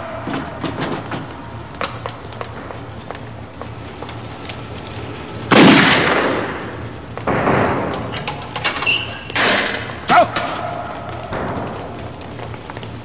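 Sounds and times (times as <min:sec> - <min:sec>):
echoing gunshots: 0:05.5 - 0:08.4.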